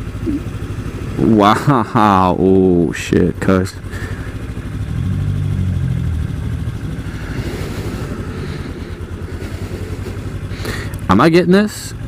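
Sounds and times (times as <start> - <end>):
motorcycle engine running: 0.0 - 12.0
wind and road noise: 0.0 - 12.0.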